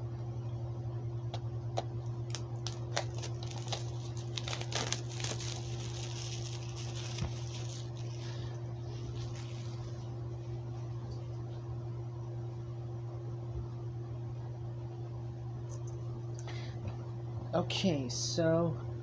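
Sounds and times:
steady low hum: 0.0s - 19.0s
plastic wrap crackling: 2.2s - 10.2s.

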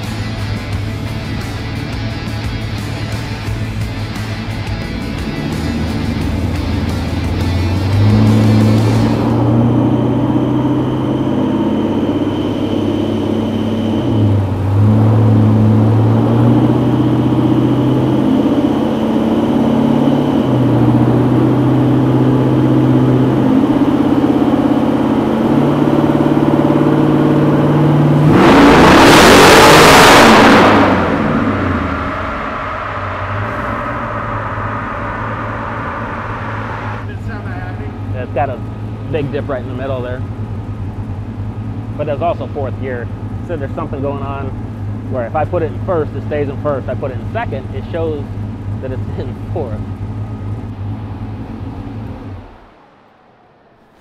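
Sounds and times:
engine running on dyno: 0.0s - 54.0s
loud rushing noise: 28.5s - 37.9s.

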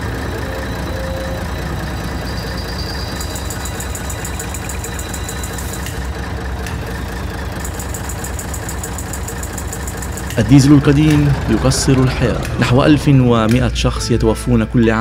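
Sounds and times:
diesel engine idling: 0.0s - 15.0s
rapid high-pitched ticking: 0.5s - 6.1s, 7.6s - 12.2s.

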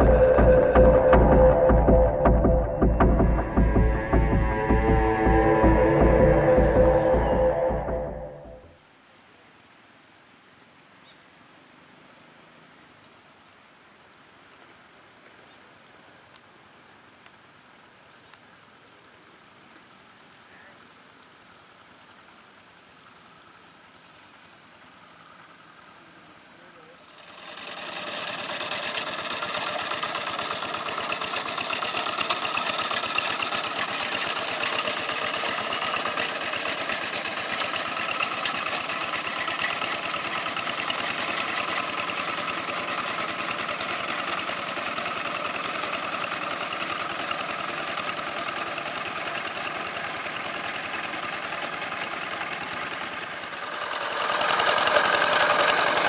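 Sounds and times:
diesel engine clattering: 0.0s - 8.6s, 27.0s - 56.0s.

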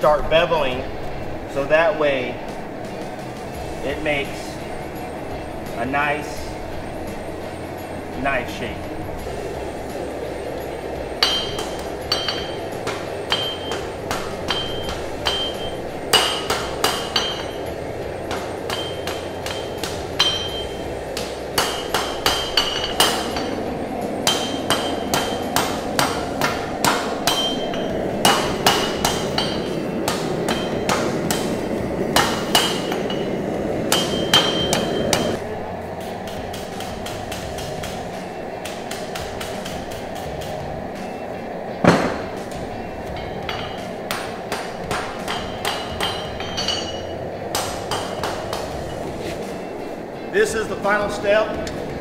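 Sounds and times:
hammer striking metal on anvil: 11.0s - 35.4s, 36.2s - 40.6s, 41.8s - 49.0s.

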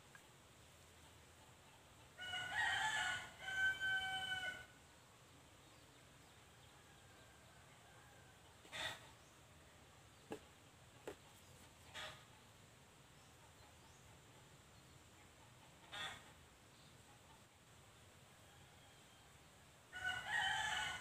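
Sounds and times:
rooster crowing: 2.2s - 4.7s, 19.9s - 21.0s.

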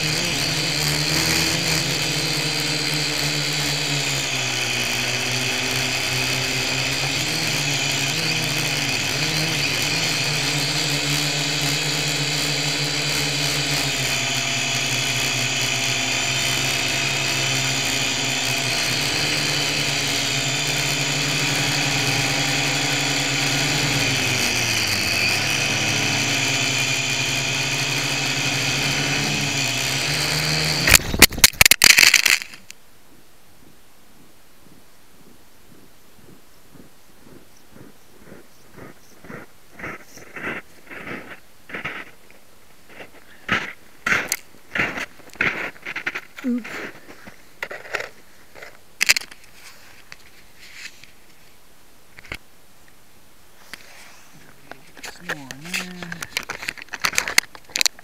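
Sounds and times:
quadcopter propellers whining: 0.0s - 42.3s, 42.9s - 48.2s, 53.6s - 58.0s
quadcopter crashing into snow: 23.0s - 32.7s.

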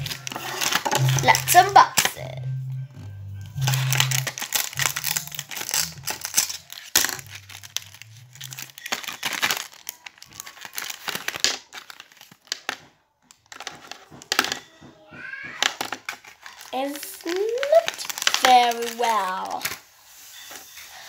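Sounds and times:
packaging crinkling and tearing: 0.0s - 2.3s, 3.5s - 14.6s, 15.4s - 21.0s.

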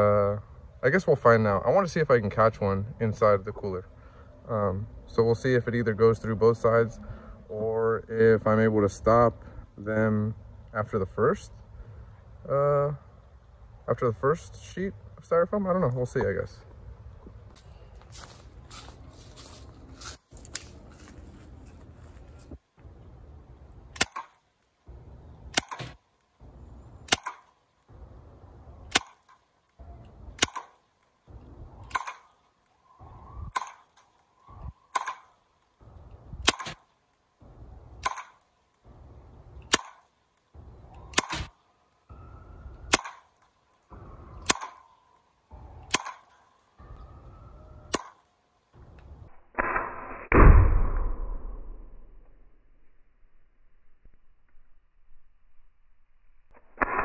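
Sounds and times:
air pistol shots: 24.0s - 24.4s, 25.5s - 26.0s, 27.1s - 27.5s, 28.9s - 29.4s, 30.4s - 30.8s, 31.9s - 32.3s, 33.5s - 34.0s, 34.9s - 35.3s, 36.4s - 36.8s, 38.0s - 38.4s, 39.7s - 40.0s, 41.1s - 41.5s, 42.9s - 43.3s, 44.4s - 44.9s, 45.9s - 46.4s, 47.9s - 48.2s, 49.5s - 51.9s, 56.7s - 57.0s.

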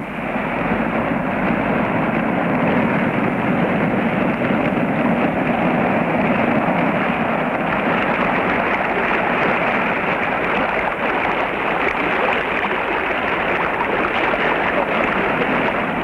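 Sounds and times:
river rapids rushing: 5.1s - 16.0s.

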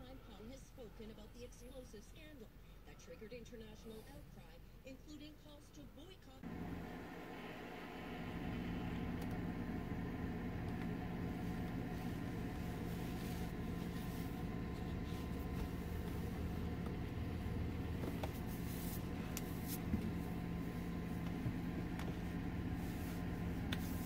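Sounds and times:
heater blower fan hum: 6.4s - 24.0s.

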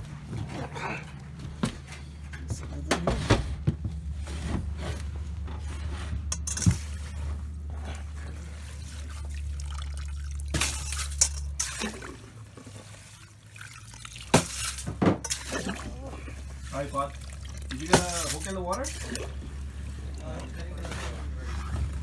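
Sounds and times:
low steady hum: 0.0s - 22.0s
water sloshing and dripping: 6.3s - 22.0s.

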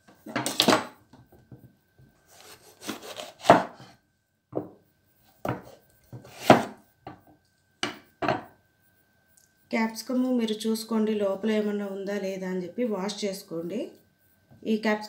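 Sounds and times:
knife chopping on cutting board: 2.4s - 3.9s, 5.4s - 6.8s.

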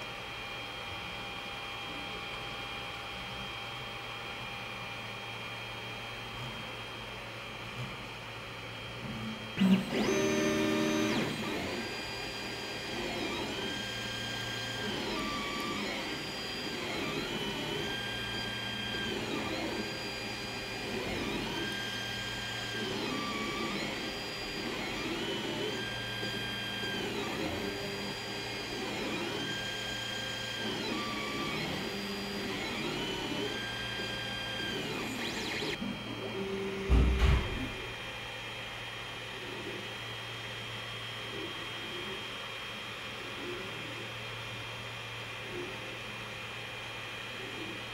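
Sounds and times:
stepper motors whining: 9.6s - 36.7s.

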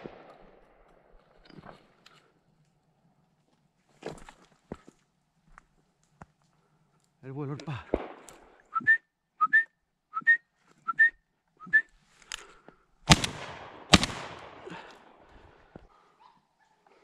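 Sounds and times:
shotgun shots: 7.9s - 8.4s, 13.1s - 15.2s
short rising whistles: 8.7s - 11.9s.

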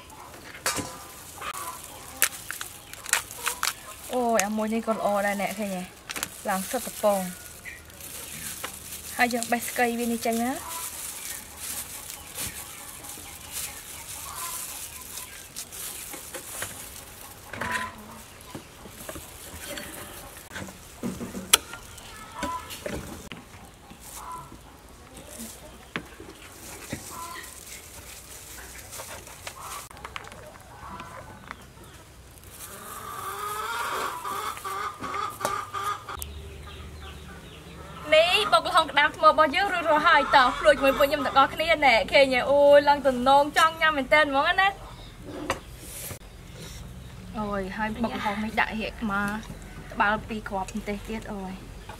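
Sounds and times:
chickens clucking: 0.0s - 51.9s
crab shell cracking: 1.5s - 4.6s.

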